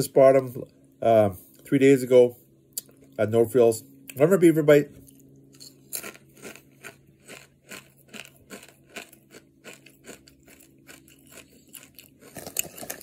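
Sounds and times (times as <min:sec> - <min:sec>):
person chewing crisp chips: 0:05.0 - 0:13.0.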